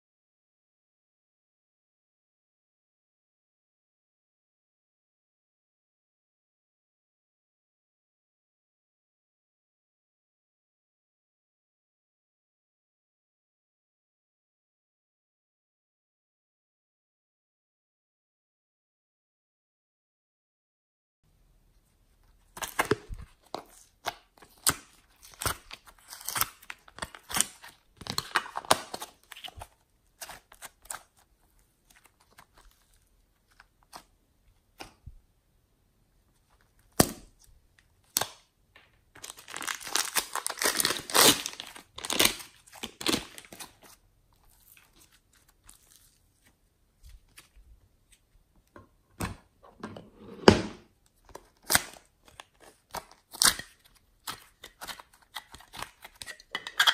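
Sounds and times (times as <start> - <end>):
plastic piping bag crinkling: 39.1 - 47.7.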